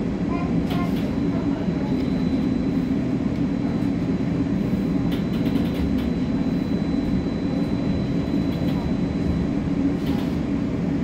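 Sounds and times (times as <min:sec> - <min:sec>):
bus engine and road noise: 0:00.0 - 0:11.0
faint high whine: 0:01.1 - 0:09.6.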